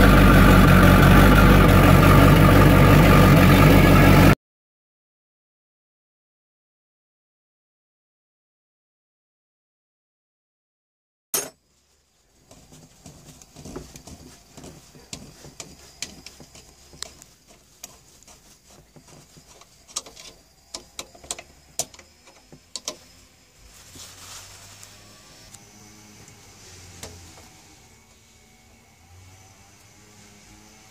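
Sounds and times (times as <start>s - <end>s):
rag rustling: 11.8s - 20.4s
small metallic clicks and taps: 19.5s - 23.0s.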